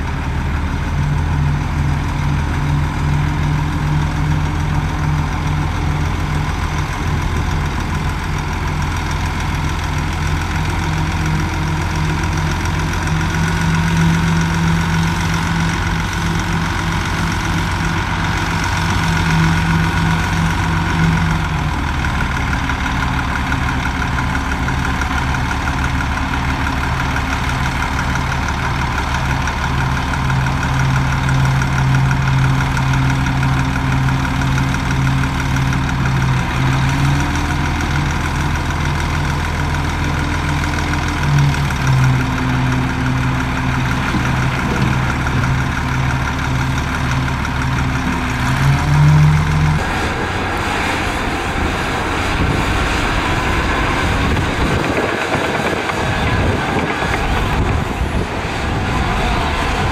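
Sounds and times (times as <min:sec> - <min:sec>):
heavy diesel engine running: 0:00.0 - 0:59.9.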